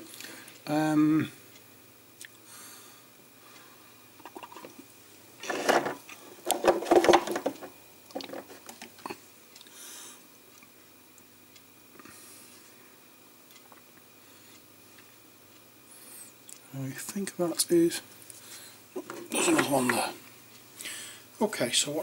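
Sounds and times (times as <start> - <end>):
plastic paint pots clattering: 5.4 - 9.0, 19.0 - 20.1.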